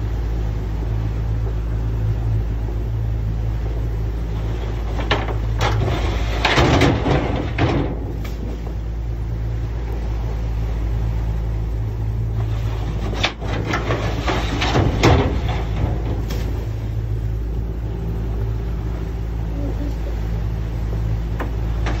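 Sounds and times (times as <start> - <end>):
boat engine running: 0.0 - 22.0
wire creel knocking and scraping: 4.4 - 8.8, 12.4 - 16.8, 21.4 - 22.0.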